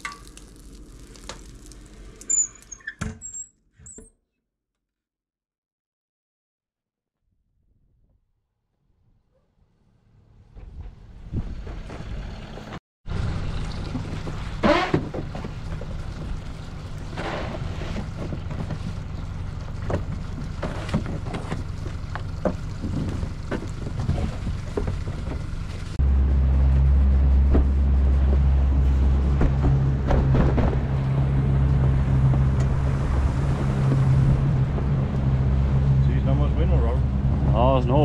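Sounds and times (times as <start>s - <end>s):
deep engine drone: 9.6s - 38.0s.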